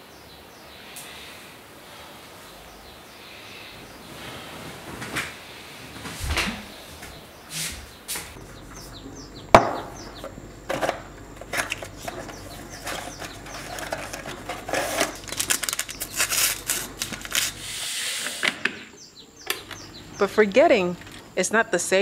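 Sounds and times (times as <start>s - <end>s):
card and paper rustling: 11.4s - 17.6s.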